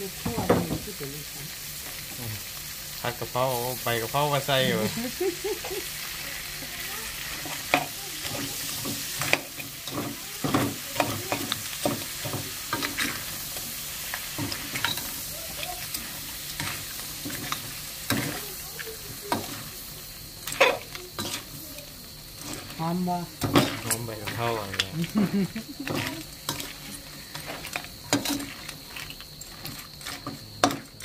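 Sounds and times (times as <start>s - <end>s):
stir-fry sizzling in a pan: 0.0s - 31.0s
utensil scraping and clinking pan: 7.3s - 19.7s, 20.4s - 31.0s.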